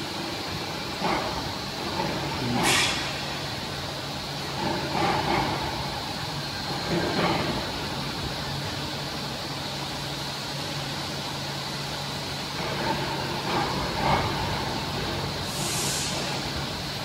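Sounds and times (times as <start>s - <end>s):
factory machinery hum: 0.0s - 17.0s
short hiss: 15.5s - 16.4s.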